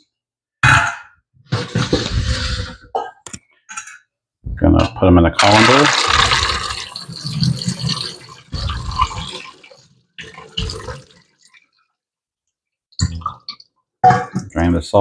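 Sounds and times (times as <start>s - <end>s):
water pouring into metal colander: 5.4s - 11.6s.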